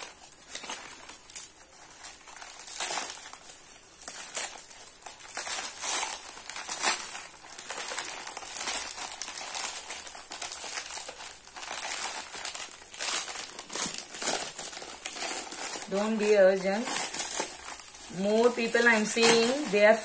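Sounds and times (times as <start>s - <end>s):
paper and plastic crinkling: 0.0s - 20.0s.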